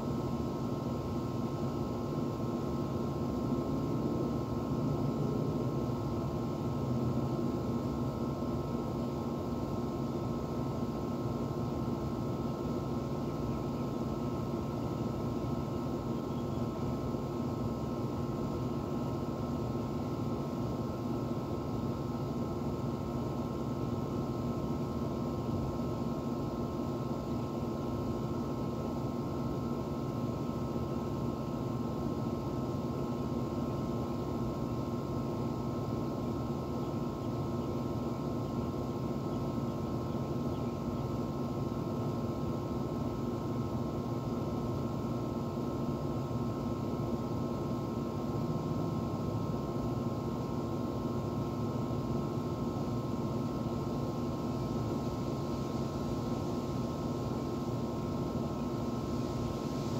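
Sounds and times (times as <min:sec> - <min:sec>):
air conditioner unit humming: 0:00.0 - 0:59.9
faint high steady tone: 0:12.8 - 0:17.2.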